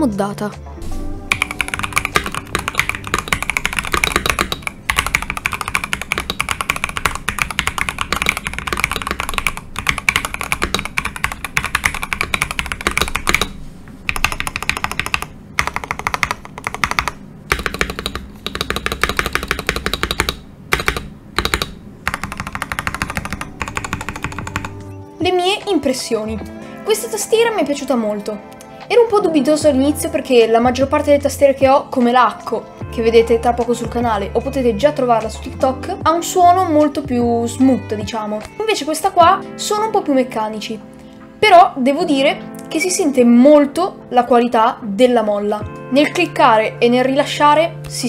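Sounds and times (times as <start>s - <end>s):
mechanical keyboard typing: 1.3s - 24.8s.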